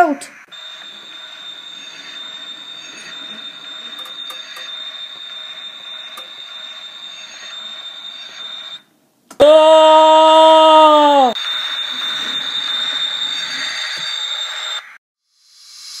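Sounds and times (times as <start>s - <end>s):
model train wheels rolling on rails: 0.5s - 8.8s, 11.4s - 15.0s.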